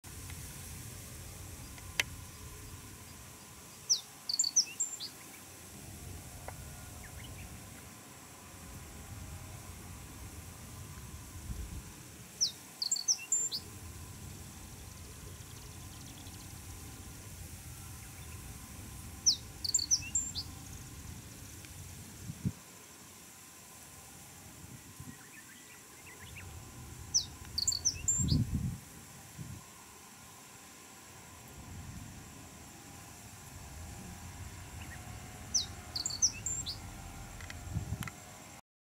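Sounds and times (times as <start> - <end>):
bird singing high notes: 3.9 - 5.2, 27.1 - 28.4, 34.8 - 36.8.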